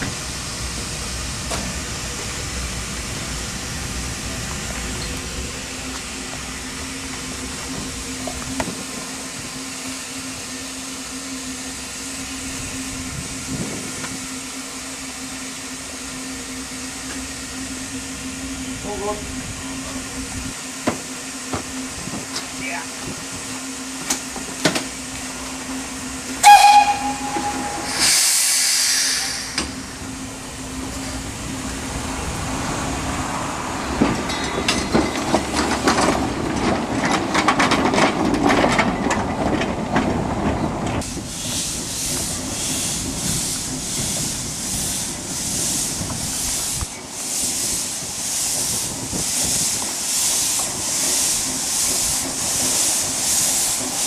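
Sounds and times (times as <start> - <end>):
steam hissing: 0.0 - 35.6, 41.0 - 54.0
locomotive rumbling and clanking: 0.0 - 54.0
steam locomotive chuffing: 0.0 - 54.0
steam whistle blast: 26.4 - 30.0.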